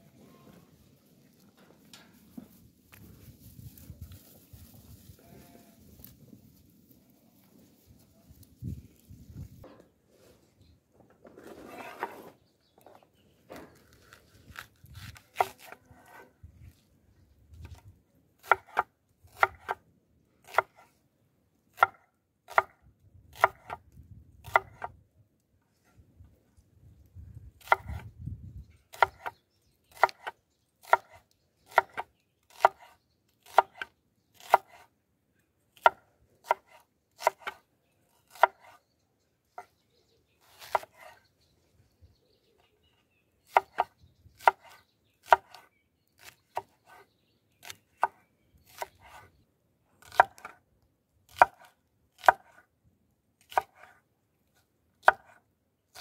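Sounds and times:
knife chopping on wooden board: 18.4 - 19.8, 23.3 - 23.8, 27.6 - 28.0, 30.0 - 34.8, 35.8 - 37.6, 51.3 - 52.6, 55.0 - 55.4.

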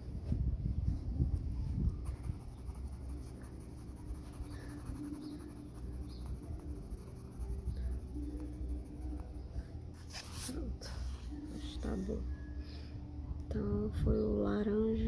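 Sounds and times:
colored pencil scratching on paper: 2.0 - 11.6.

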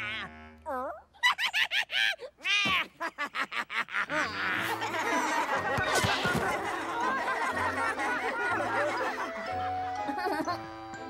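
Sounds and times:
cartoon children laughing: 0.0 - 10.8
low background music: 4.4 - 11.0.

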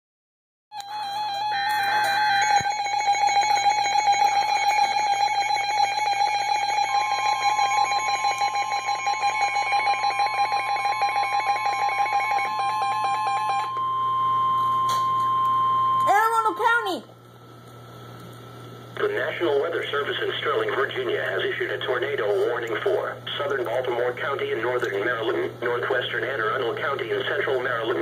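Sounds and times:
steady warning alarm tone: 0.8 - 17.0
rapidly pulsing alarm beep: 0.9 - 16.9.

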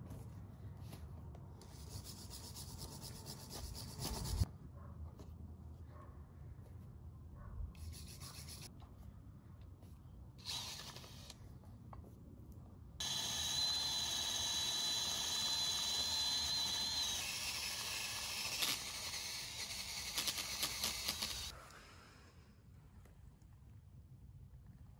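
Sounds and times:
drill with wire brush grinding: 10.4 - 11.4, 13.0 - 21.5.

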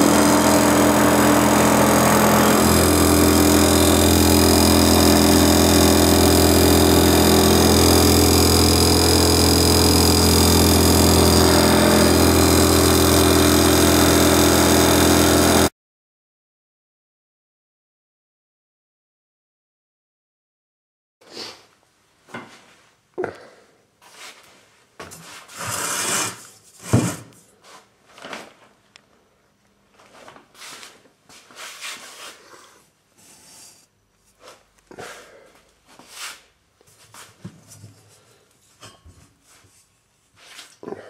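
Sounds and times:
rubbing and scraping handling noise: 24.0 - 28.8, 29.9 - 40.8.

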